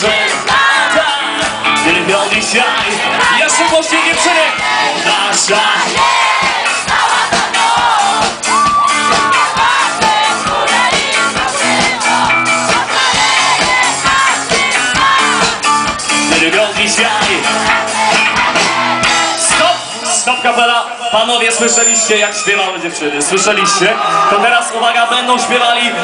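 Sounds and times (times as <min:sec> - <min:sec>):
drum beat: 0:00.0 - 0:20.0
sung vocals: 0:00.0 - 0:20.1
crowd singing and shouting: 0:00.0 - 0:26.0
live band playing amplified music: 0:00.0 - 0:26.0.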